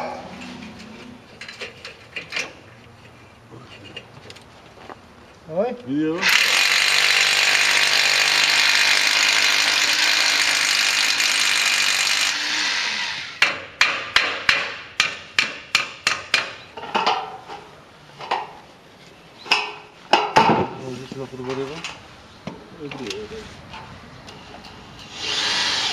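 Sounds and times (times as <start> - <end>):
cordless drill running: 6.2 - 13.4, 25.1 - 25.9
hammer strikes: 13.4 - 17.2.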